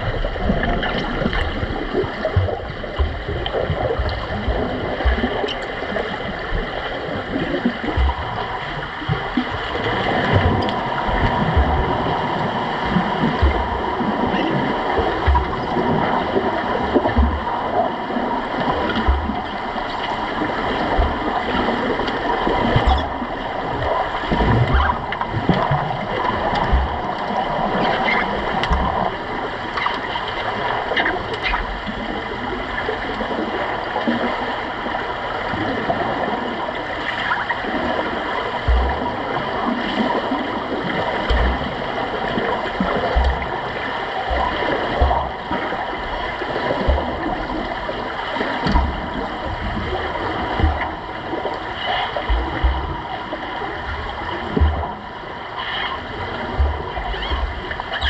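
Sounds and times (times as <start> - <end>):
low underwater thumps: 0.0 - 29.2, 38.6 - 55.2, 56.4 - 58.0
underwater rushing and gurgling: 0.0 - 58.0
faint underwater clicks: 0.4 - 17.7, 18.4 - 32.1, 38.6 - 58.0.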